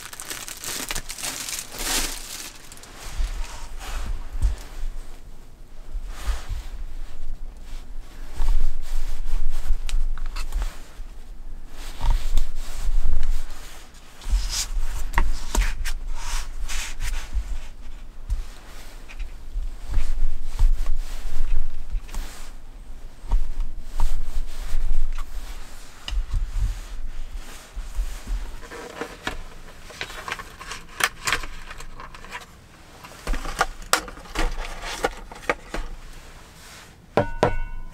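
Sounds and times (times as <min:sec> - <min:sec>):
knife tapping on wooden board: 0:37.2 - 0:37.8.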